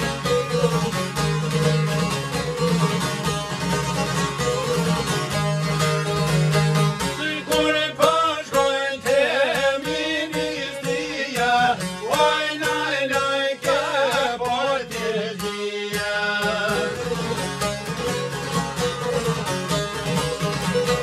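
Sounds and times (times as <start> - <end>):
plucked lutes: 0.0 - 21.0
man singing with vibrato: 7.0 - 17.5.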